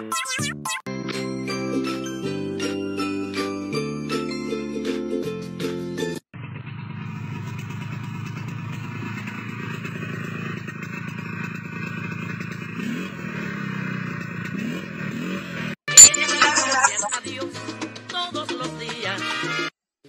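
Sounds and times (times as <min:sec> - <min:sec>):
brush cutter engine running: 0:06.9 - 0:15.5.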